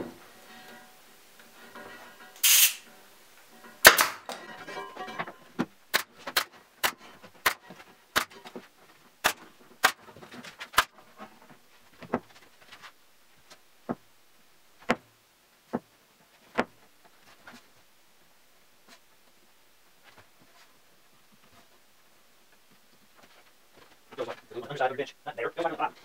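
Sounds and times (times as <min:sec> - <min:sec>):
nail gun firing into wood: 0:03.8 - 0:04.4, 0:05.9 - 0:08.4, 0:09.2 - 0:10.1.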